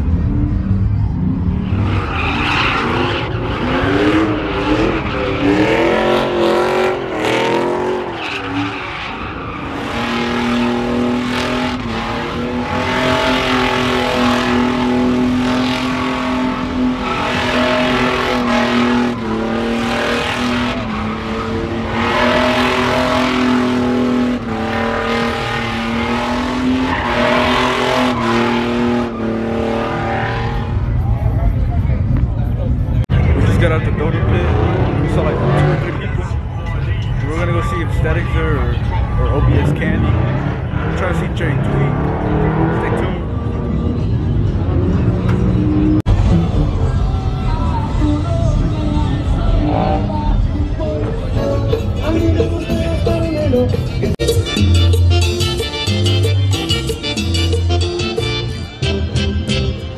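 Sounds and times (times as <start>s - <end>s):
tyres spinning and skidding: 0.0s - 31.3s
truck engine revving: 0.0s - 59.9s.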